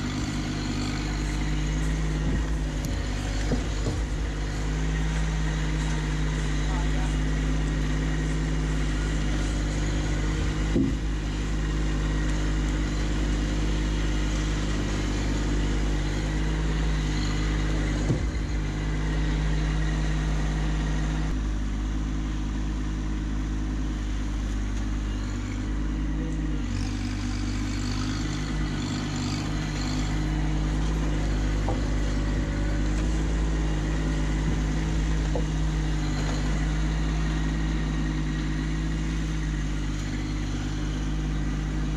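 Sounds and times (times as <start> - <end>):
tractor diesel engine running: 0.0 - 41.9
short knocks: 2.1 - 4.5, 10.3 - 11.2.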